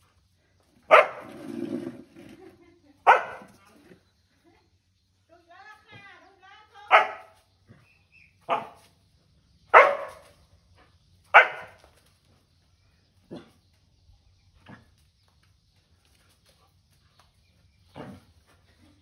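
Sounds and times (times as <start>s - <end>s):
dog barking: 0.9s - 1.3s, 3.0s - 3.6s, 6.9s - 7.4s, 8.4s - 8.8s, 9.7s - 10.3s, 11.3s - 11.8s.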